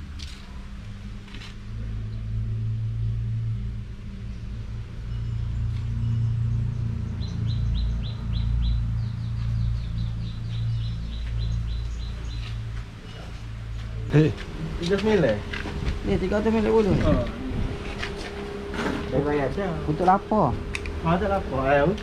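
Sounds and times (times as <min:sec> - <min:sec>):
low machine hum: 0:00.0 - 0:22.0
small bird chirping: 0:05.6 - 0:13.8.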